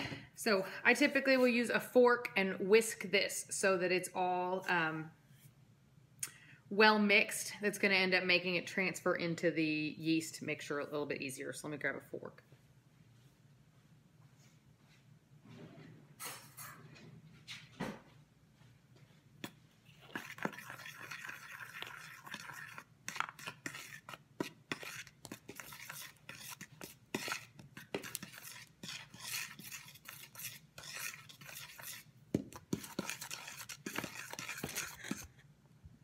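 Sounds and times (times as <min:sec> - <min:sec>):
fork whisking in plastic bowl: 0:19.4 - 0:35.5.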